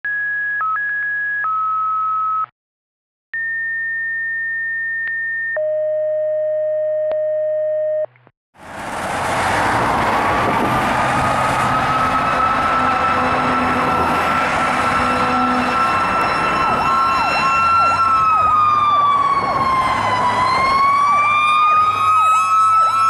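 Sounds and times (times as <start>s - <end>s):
street traffic noise: 8.2s - 23.0s
siren rising in pitch: 9.7s - 23.0s.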